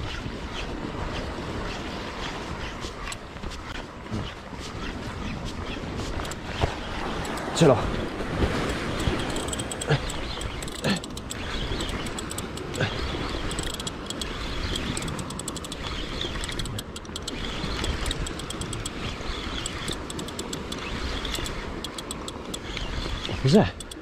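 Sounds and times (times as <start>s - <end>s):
fishing reel ticking: 6.1s - 7.6s, 8.6s - 22.8s, 23.6s - 24.0s.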